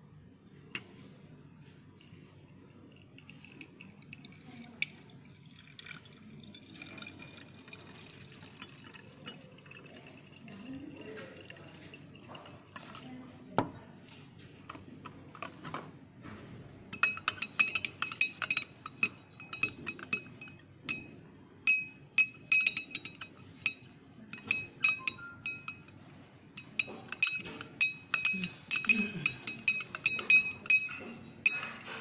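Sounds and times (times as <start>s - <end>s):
glass rod clinking in glass flask: 2.8s - 13.0s, 16.9s - 26.0s, 26.6s - 32.0s.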